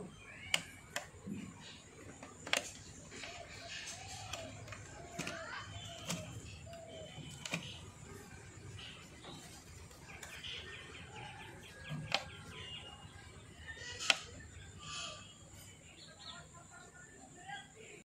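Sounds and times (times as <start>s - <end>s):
birds chirping faintly: 0.0s - 18.0s.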